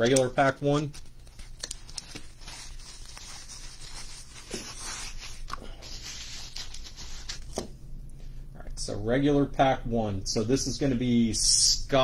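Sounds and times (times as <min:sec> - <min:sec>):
plastic wrap rustling and crinkling: 0:00.0 - 0:07.6.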